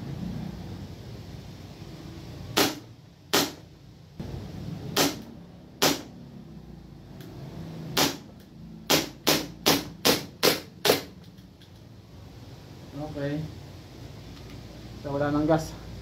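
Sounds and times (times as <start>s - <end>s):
airsoft pistol shots: 2.6s - 3.6s, 4.9s - 6.1s, 8.0s - 8.3s, 8.9s - 11.1s.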